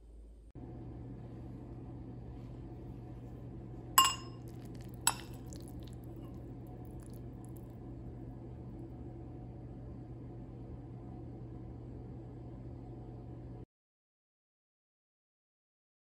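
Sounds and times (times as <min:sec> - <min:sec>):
metal fork clinking on glass bowl: 0:04.0 - 0:06.4.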